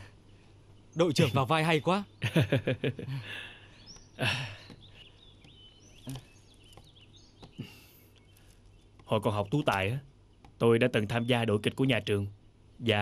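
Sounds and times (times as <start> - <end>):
faint bird chirps: 0.0 - 13.0
man laughing breathily: 2.2 - 4.7.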